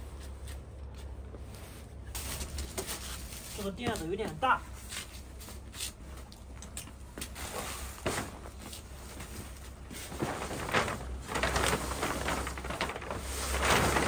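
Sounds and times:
plastic tarp rustling: 1.6s - 5.6s, 7.3s - 14.0s.

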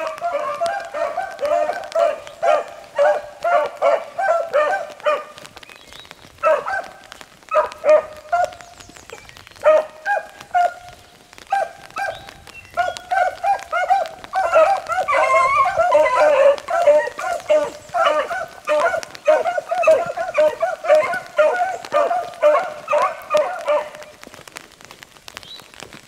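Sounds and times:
dogs baying: 0.0s - 5.6s, 6.4s - 24.4s.

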